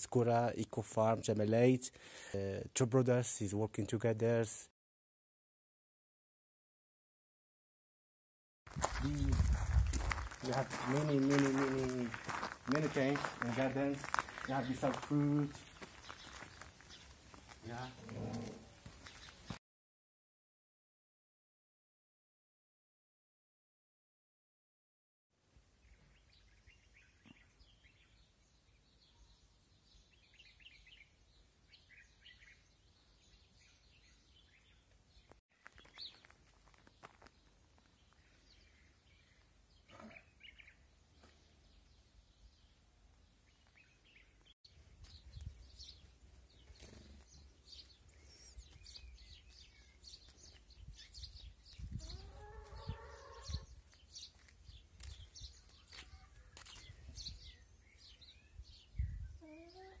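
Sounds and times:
wind rumble on microphone: 8.7 - 10.3, 50.8 - 53.9, 58.5 - 59.4
small birds chirping: 8.9 - 19.6, 25.8 - 60.0
rising animal call: 52.0 - 53.7.

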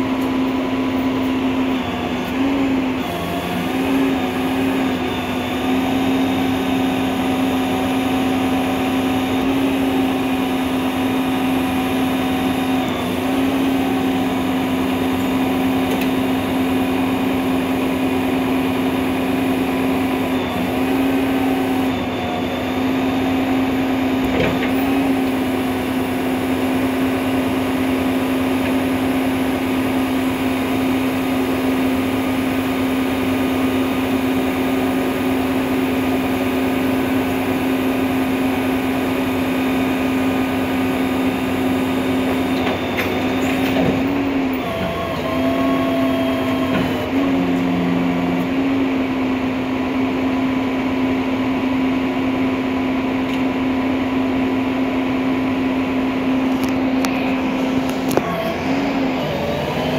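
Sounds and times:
truck engine idling: 50.1 - 59.9.

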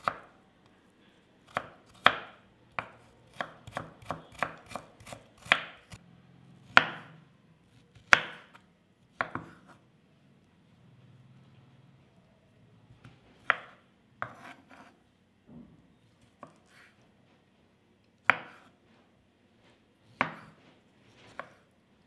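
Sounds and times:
knife chopping on wooden board: 1.5 - 6.0, 6.7 - 7.2, 7.9 - 8.6, 9.2 - 9.8, 13.4 - 15.0, 18.2 - 18.8, 20.1 - 20.6, 21.3 - 21.6.

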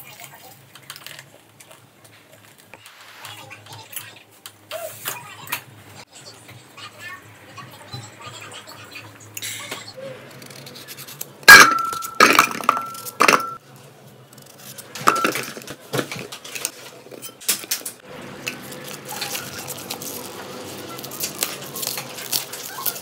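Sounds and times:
metal saucepan clanking: 11.5 - 13.6, 15.0 - 15.7
rustling: 14.4 - 23.0.

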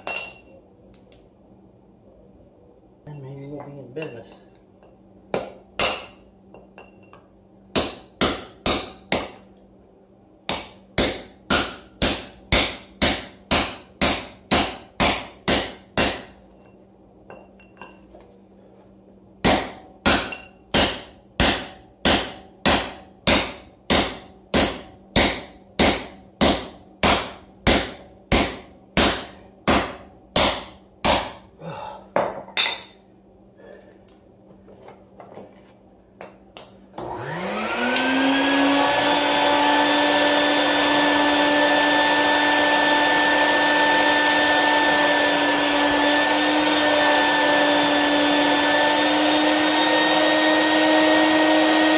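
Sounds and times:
hammer striking steel rod: 5.3 - 6.2, 7.7 - 9.5, 10.5 - 16.4, 19.4 - 31.4.

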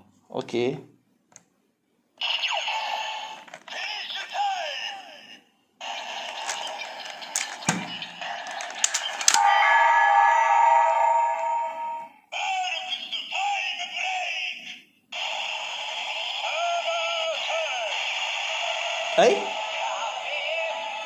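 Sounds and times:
recorded voice calls: 2.4 - 9.8, 11.6 - 14.9, 16.2 - 18.1, 19.1 - 20.8
toy speaker music: 2.4 - 10.0, 15.2 - 21.0
plastic toy clicks: 6.2 - 9.4.

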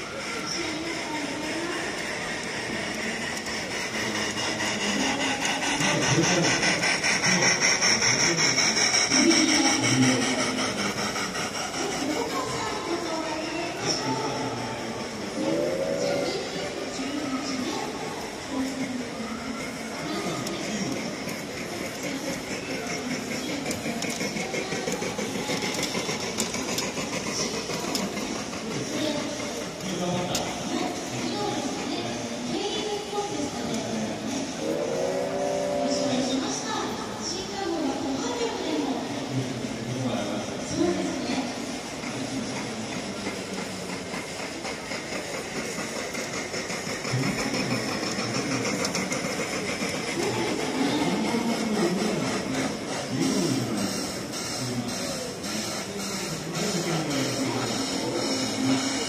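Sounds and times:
steady background din: 0.0 - 39.1
model train running: 0.0 - 59.0
wheels clicking on rails: 0.0 - 59.0.

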